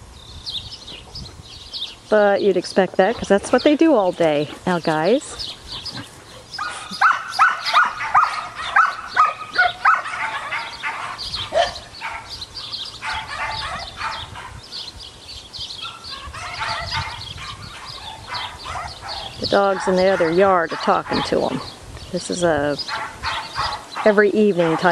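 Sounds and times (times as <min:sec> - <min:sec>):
dogs barking and yipping: 0:04.9 - 0:15.0, 0:15.7 - 0:21.8, 0:22.7 - 0:24.9.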